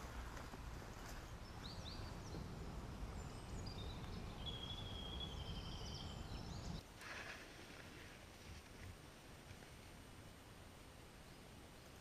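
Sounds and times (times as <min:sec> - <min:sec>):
wind rumble on microphone: 0:00.0 - 0:06.8
small birds chirping: 0:00.8 - 0:06.9
long high bird call: 0:03.2 - 0:06.8.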